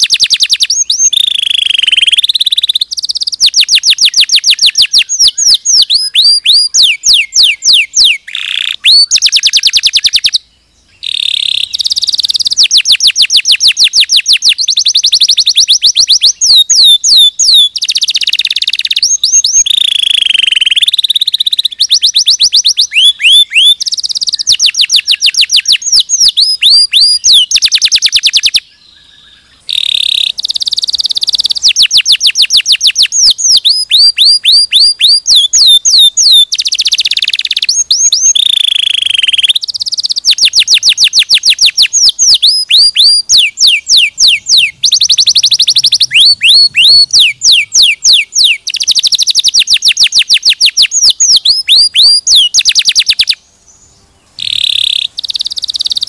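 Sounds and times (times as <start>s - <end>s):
canary singing trills: 0.0s - 56.0s.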